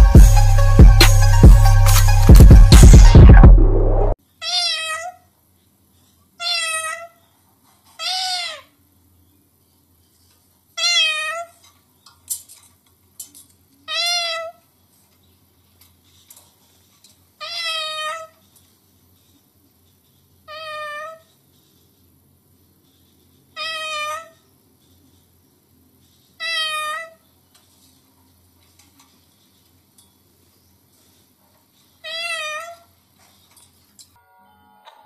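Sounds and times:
loud music: 0.0s - 4.2s
cockatoo mimicking cat meow: 4.4s - 5.3s, 6.4s - 7.2s, 8.0s - 8.8s, 10.8s - 11.6s, 13.8s - 14.6s, 17.4s - 18.4s, 20.5s - 21.3s, 23.6s - 24.4s, 26.4s - 27.2s, 32.0s - 32.9s.

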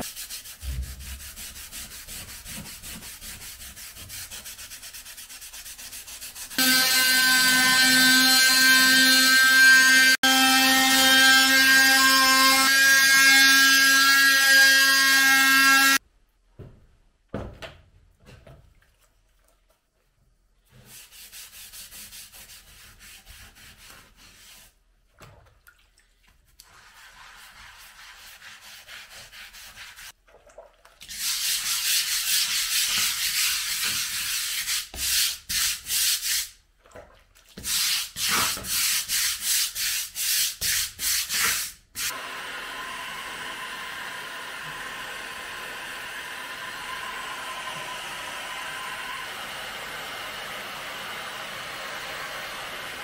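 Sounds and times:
hand scrubbing on plate: 0.0s - 6.6s, 26.2s - 30.2s
electric hand sander: 6.6s - 16.0s, 42.1s - 53.0s.

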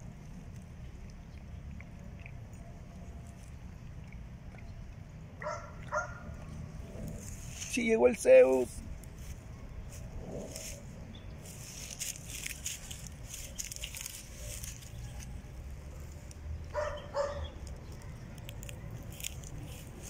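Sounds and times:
puppy rustling on dry leaves: 7.1s - 20.0s.

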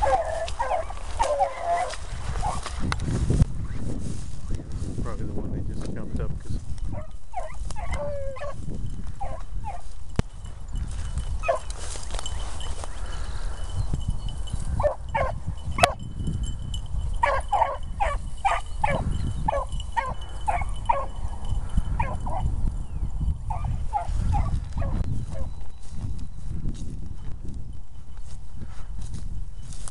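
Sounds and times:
hounds baying: 0.0s - 2.8s, 6.9s - 10.0s, 11.2s - 13.7s, 14.5s - 16.0s, 16.7s - 22.6s, 23.5s - 25.6s.

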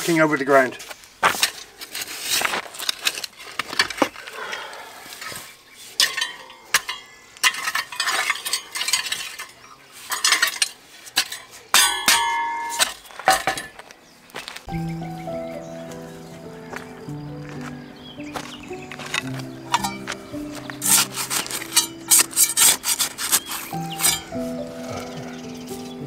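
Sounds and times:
garden fork scraping stony soil: 0.0s - 4.0s, 18.2s - 26.0s
ringing metal clink: 6.0s - 13.8s, 19.0s - 20.2s, 23.3s - 24.4s.

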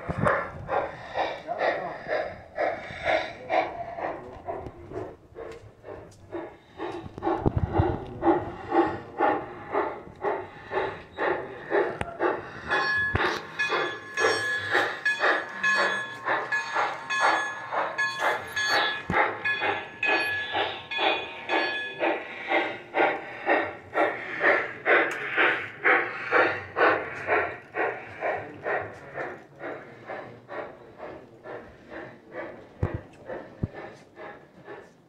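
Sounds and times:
model steam locomotive chuffing: 0.0s - 35.0s.

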